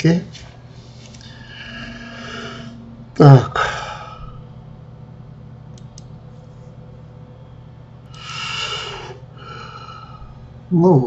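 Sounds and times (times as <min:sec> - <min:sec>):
low steady hum: 0:00.0 - 0:11.0
faint clicks: 0:05.7 - 0:06.2.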